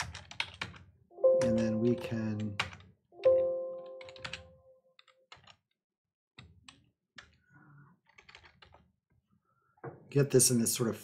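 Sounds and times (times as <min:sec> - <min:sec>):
keyboard typing clicks: 0:00.1 - 0:05.6.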